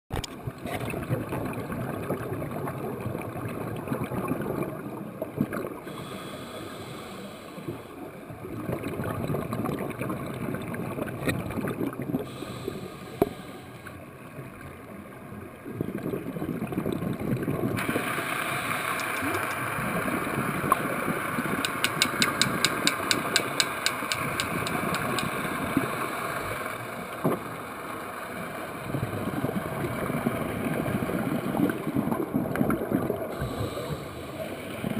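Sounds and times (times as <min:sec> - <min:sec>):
high steady hiss: 0:17.8 - 0:28.7
rapid evenly spaced ticks: 0:18.8 - 0:19.7, 0:21.6 - 0:25.3.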